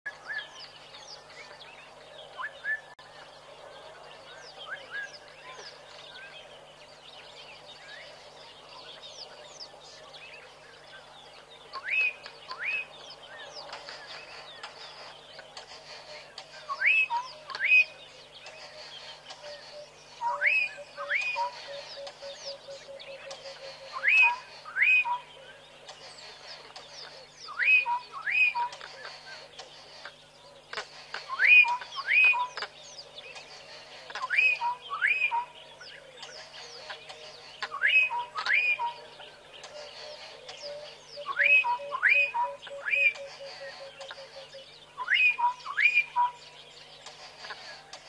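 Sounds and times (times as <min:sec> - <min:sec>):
wild birds chirping and whistling: 0:00.1 - 0:48.0
loud rising bird whistle: 0:45.0 - 0:46.4.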